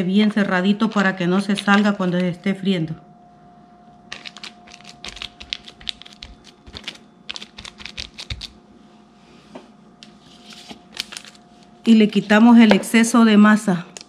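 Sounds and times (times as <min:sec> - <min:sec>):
plastic sheet crinkling: 0:04.1 - 0:08.6, 0:10.3 - 0:12.3.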